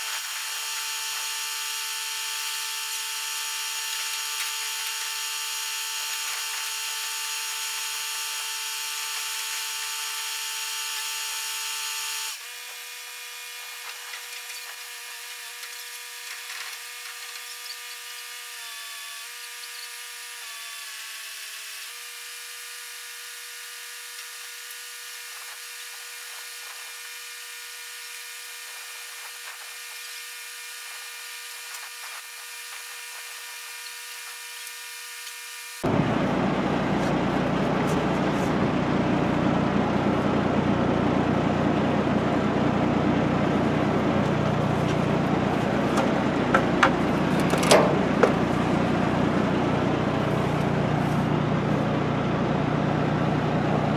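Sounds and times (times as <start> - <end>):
heavy equipment whine: 35.8 - 53.9.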